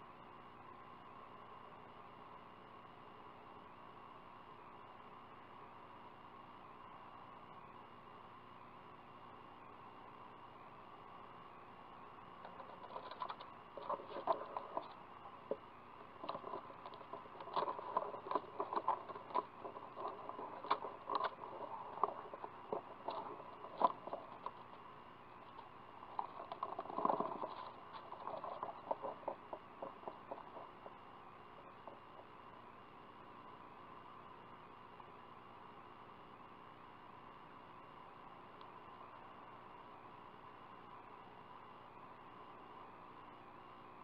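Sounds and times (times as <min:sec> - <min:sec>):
owl scratching in wood shavings: 0:12.5 - 0:15.6, 0:16.2 - 0:24.8, 0:25.4 - 0:32.3.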